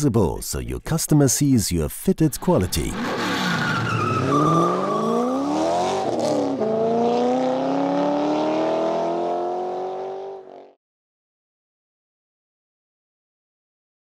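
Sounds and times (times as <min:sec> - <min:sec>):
car engine accelerating: 0:02.9 - 0:10.8.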